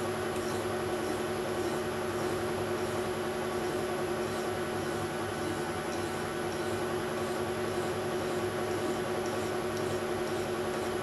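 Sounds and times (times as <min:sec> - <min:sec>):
file stroking spinning metal: 0:00.0 - 0:11.0.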